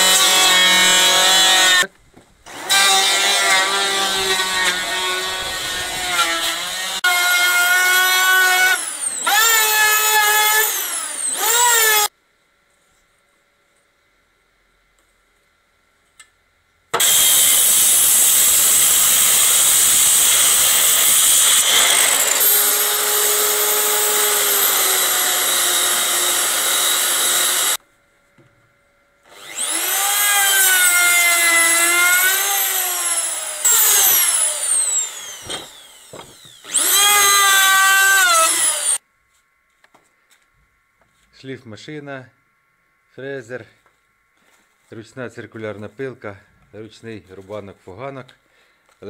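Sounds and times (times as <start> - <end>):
wood router whining: 2.5 - 12.1, 17.0 - 27.8, 29.3 - 39.0.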